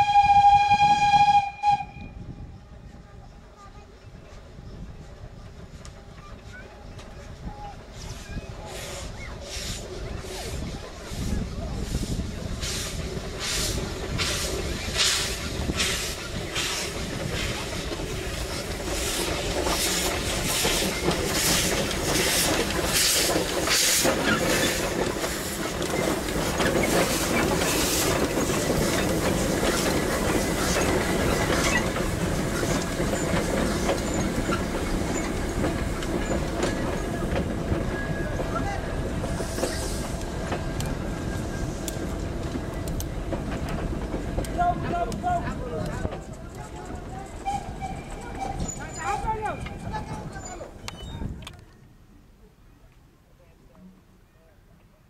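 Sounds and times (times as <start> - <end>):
steam locomotive exhaust beats: 0.0 - 3.5, 4.2 - 49.0
train coaches rattling on rails: 0.0 - 51.9
steam hissing: 7.8 - 43.2.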